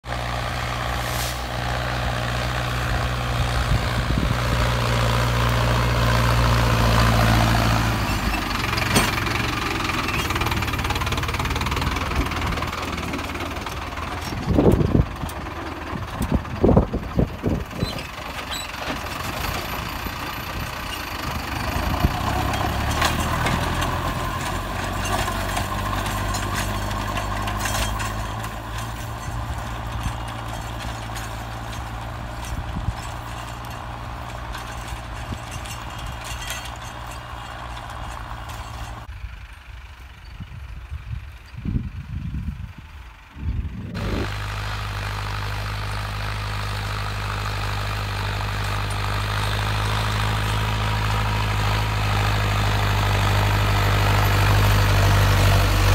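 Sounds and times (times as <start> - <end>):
loud irregular rumbles: 0.0 - 39.1
tractor diesel engine running: 0.0 - 55.9.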